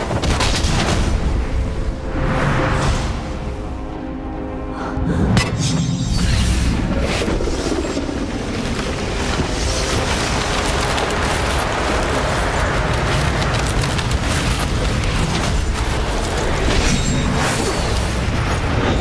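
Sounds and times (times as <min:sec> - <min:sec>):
crackles and crashes: 0:06.6 - 0:19.0.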